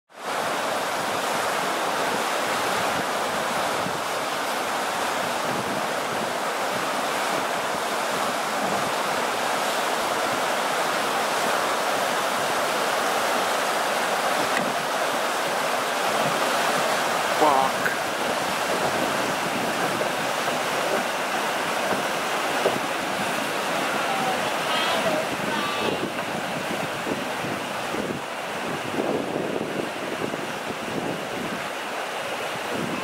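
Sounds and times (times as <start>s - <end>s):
river rapids rushing: 0.1s - 33.0s.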